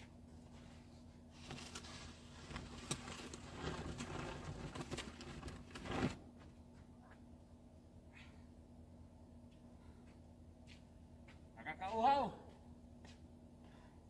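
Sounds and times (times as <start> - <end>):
snow shovel scraping pavement: 1.8 - 6.2.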